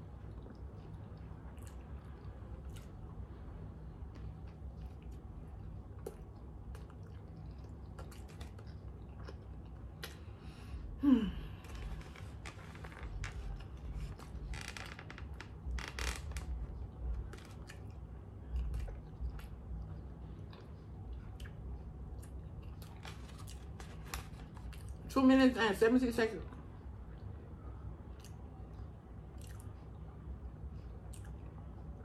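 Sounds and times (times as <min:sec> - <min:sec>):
chewing and biting food: 0:00.2 - 0:03.2, 0:04.0 - 0:10.3, 0:16.8 - 0:25.0, 0:28.2 - 0:30.0
paper food trays crinkling: 0:22.8 - 0:24.9.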